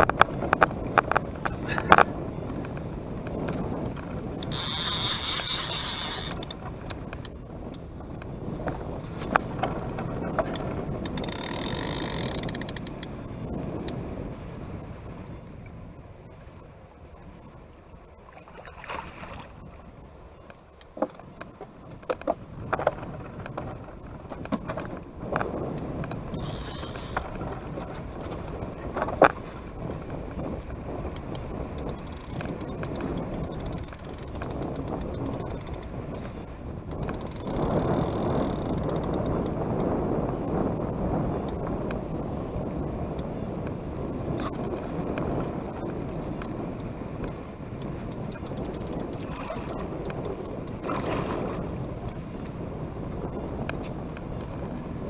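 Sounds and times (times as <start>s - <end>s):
wind: 0.0s - 55.0s
thin high hiss: 26.2s - 32.7s.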